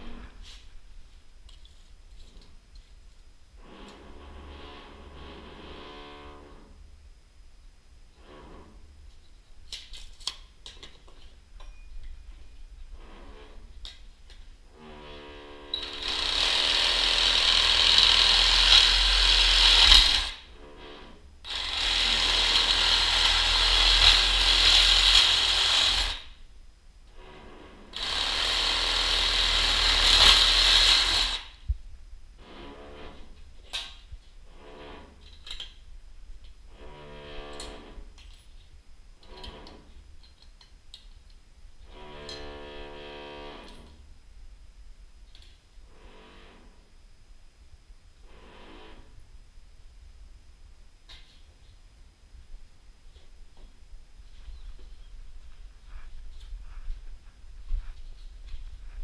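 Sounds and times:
reciprocating saw cutting: 15.7 - 20.4, 21.5 - 26.4.

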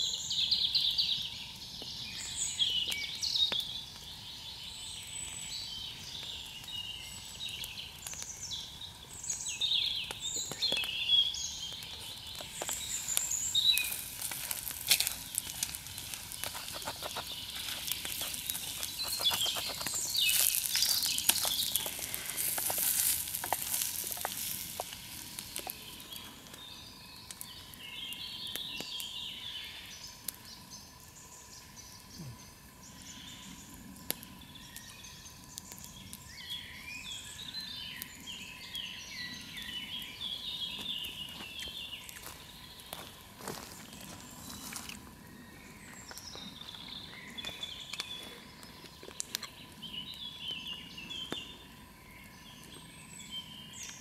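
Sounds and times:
birds singing: 0.0 - 54.0
campfire crackling and popping: 0.0 - 54.0
food sizzling in frying pan: 12.4 - 26.0
wooden spoon stirring: 13.8 - 25.8.

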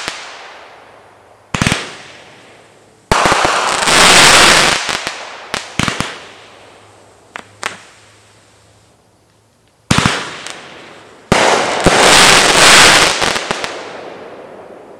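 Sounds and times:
firework shot: 0.0 - 0.8, 1.5 - 6.7, 7.3 - 8.1, 9.9 - 14.9
firework crackling: 0.0 - 14.9
firework pops: 7.3 - 8.0.

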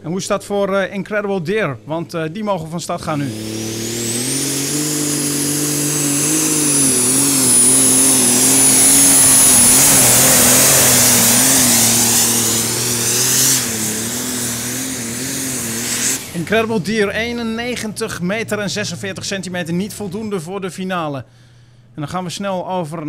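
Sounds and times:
tractor engine at full throttle: 3.0 - 17.7
high engine whine: 3.0 - 20.5.

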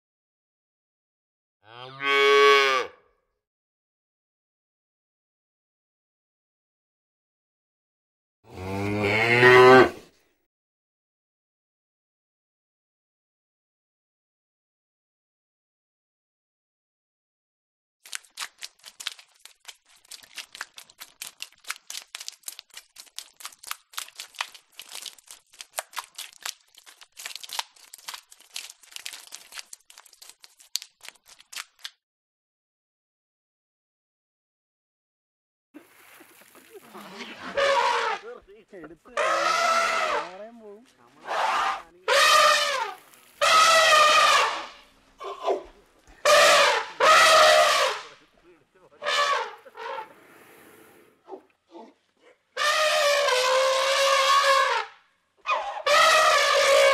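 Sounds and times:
elephant trumpeting: 37.0 - 38.4, 39.2 - 40.5, 41.2 - 48.2, 49.0 - 50.4, 52.6 - 56.9.

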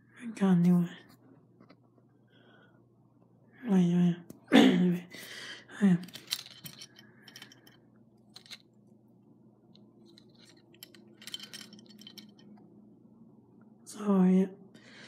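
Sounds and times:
metal buckle clinking: 6.0 - 8.8, 10.0 - 12.7.

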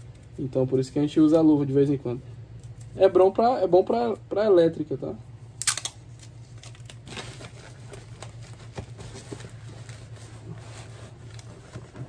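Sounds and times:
steady low hum: 0.0 - 12.0
packing tape roll handled: 5.6 - 12.0
rustling of cardboard box: 7.0 - 12.0.

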